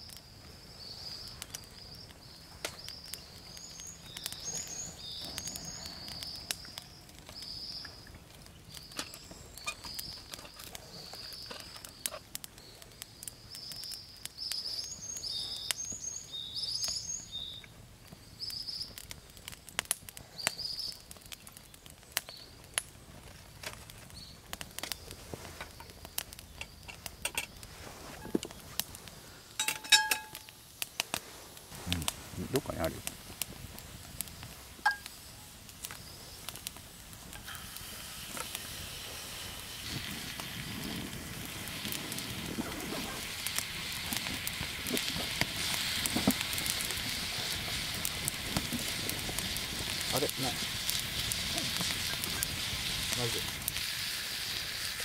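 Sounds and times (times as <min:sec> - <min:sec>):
campfire crackling and popping: 0:00.0 - 0:55.0
bird chirping: 0:00.7 - 0:12.8, 0:13.4 - 0:17.7
skillet clanking on metal grill: 0:29.6 - 0:30.4.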